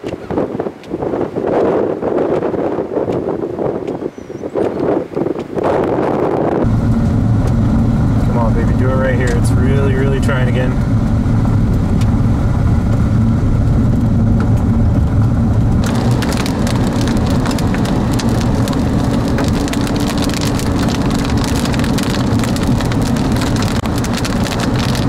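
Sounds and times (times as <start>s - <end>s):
car engine and road drone: 5.5s - 25.0s
rain hitting windshield: 6.6s - 25.0s
tyres on wet road: 6.6s - 25.0s.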